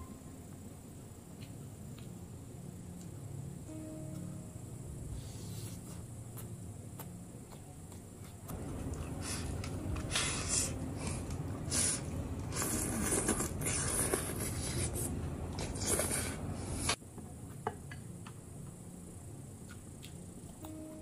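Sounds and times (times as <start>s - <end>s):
slurping food from shell: 9.1s - 17.0s.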